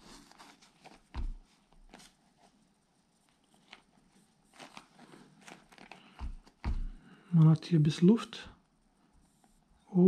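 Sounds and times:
dull thump: 1.1 - 1.4, 6.2 - 7.0.

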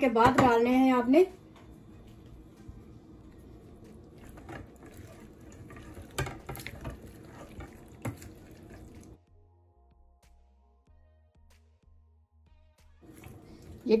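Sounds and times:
soft background music: 0.0 - 14.0
wet mixture squelching: 2.2 - 9.2, 13.0 - 14.0
spoon knocking and scraping pot: 4.2 - 9.2.

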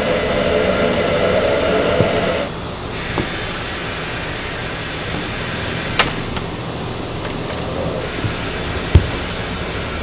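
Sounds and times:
factory machinery humming: 0.0 - 10.0.

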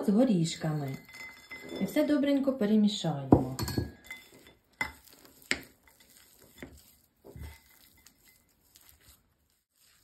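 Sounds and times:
spoon stirring stiff dough: 0.0 - 10.0
spoon clinking against bowl: 0.3 - 2.2, 3.4 - 6.1.

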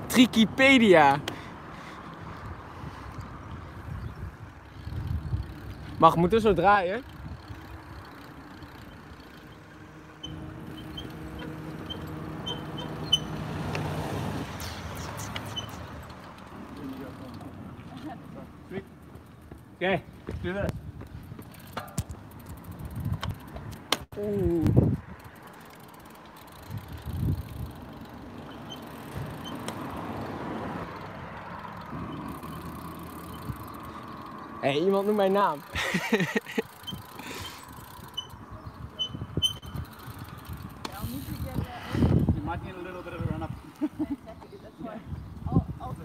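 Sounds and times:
bicycle rolling on asphalt: 0.0 - 46.0
vehicle engine hum passing: 7.0 - 19.4, 25.0 - 35.8.

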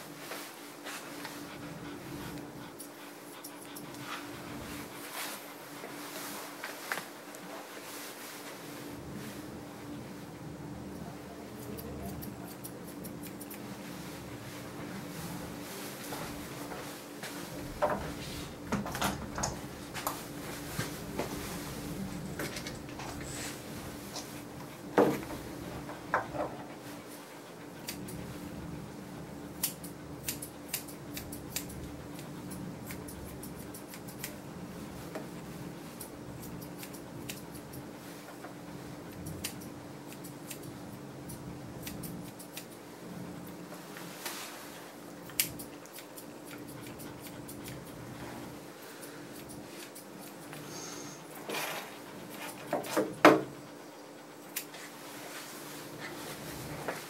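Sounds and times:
steady low hum: 0.0 - 57.0
shears snipping hair: 2.3 - 5.5, 11.5 - 14.2, 26.6 - 28.4, 29.6 - 34.5, 35.1 - 38.5, 39.1 - 43.6, 45.2 - 53.7, 54.4 - 57.0.

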